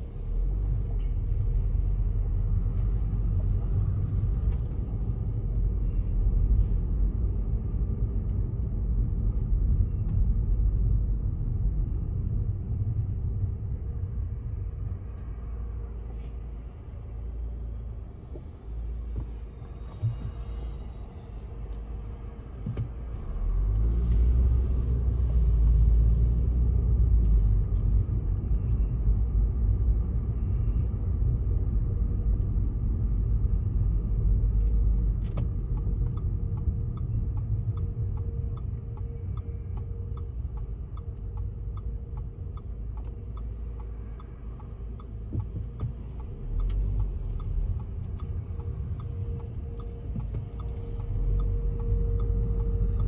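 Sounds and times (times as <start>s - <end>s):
car engine and road rumble: 0.0s - 53.0s
turn signal clicking: 34.6s - 53.0s.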